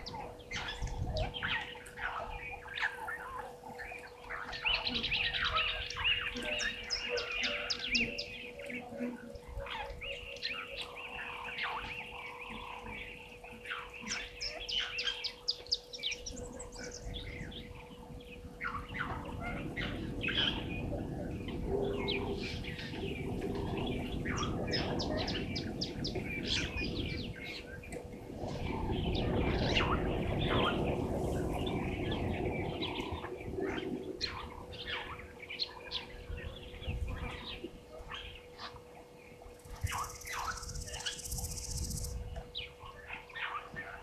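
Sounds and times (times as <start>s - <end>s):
faint steady hum: 0.0s - 44.0s
low rumbling noise: 0.0s - 44.0s
wild birds chirping: 0.0s - 44.0s.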